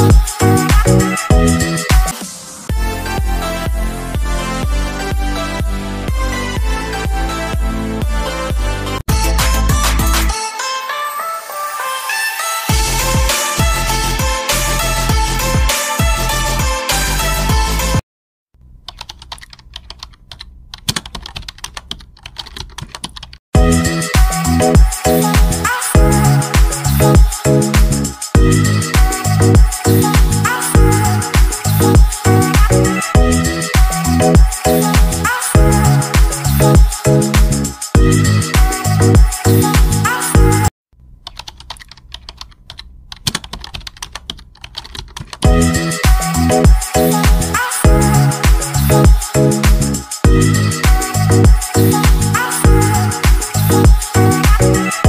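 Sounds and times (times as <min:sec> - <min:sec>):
electronic music with beat: 0:00.0 - 0:18.0, 0:23.6 - 0:40.7, 0:45.4 - 0:55.0
keyboard key clicks: 0:18.9 - 0:23.4, 0:41.3 - 0:45.4.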